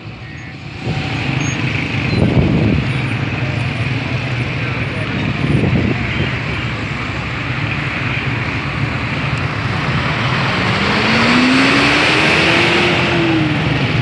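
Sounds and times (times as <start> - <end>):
road traffic noise: 0.0 - 14.0
vehicle engine speeding up: 8.5 - 14.0.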